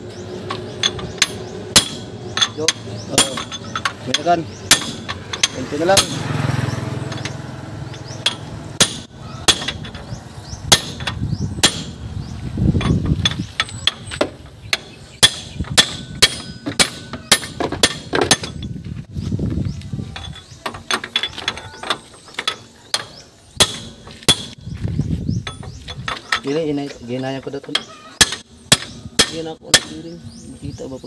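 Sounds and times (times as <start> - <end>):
hammer striking metal: 0.5 - 6.4, 7.1 - 10.1, 10.7 - 12.0, 12.8 - 18.6, 21.1 - 24.6, 27.8 - 30.1.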